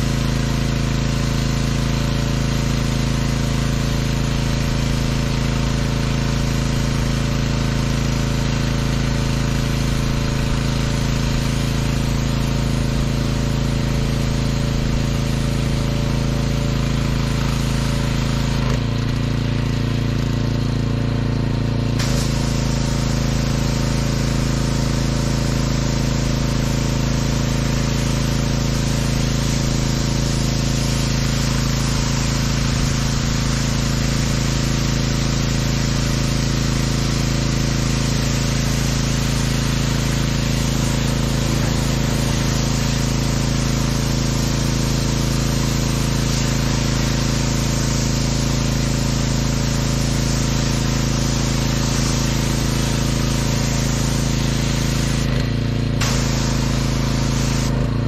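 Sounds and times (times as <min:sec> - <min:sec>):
pressure washer engine running: 0:00.0 - 0:58.0
spray wand hissing: 0:22.0 - 0:57.8.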